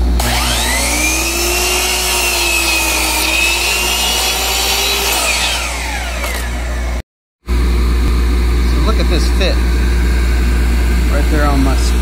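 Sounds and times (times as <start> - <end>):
miter saw cutting wood: 0.0 - 7.0.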